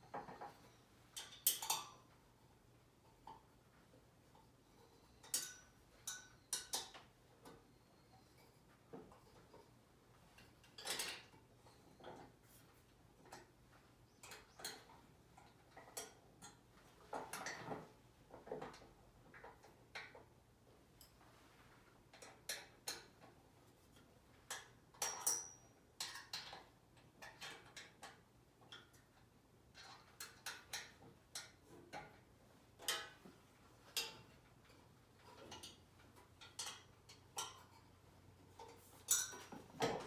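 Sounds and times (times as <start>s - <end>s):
metal parts clicking and knocking: 0.1s - 2.2s, 10.4s - 12.3s, 24.4s - 40.0s.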